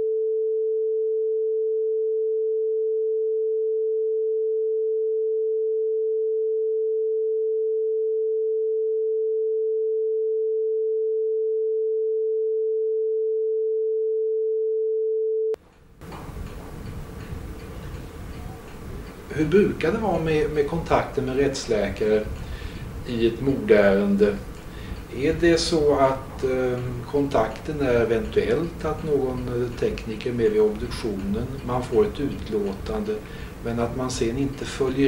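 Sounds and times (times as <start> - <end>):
censor bleep sine tone: 0.0 - 15.6.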